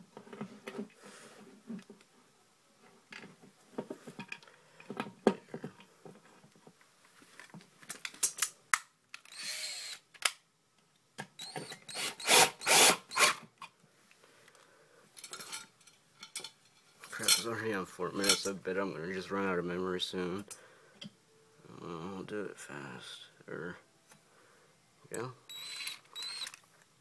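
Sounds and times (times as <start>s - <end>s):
drill driving screws: 9.2s - 10.0s, 11.4s - 13.4s, 25.5s - 26.6s.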